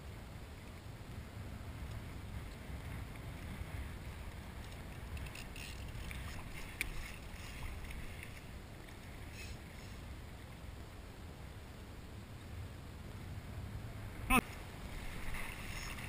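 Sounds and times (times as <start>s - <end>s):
faint clicks and ticks: 1.8s - 9.6s
water lapping: 1.8s - 10.7s, 13.9s - 16.0s.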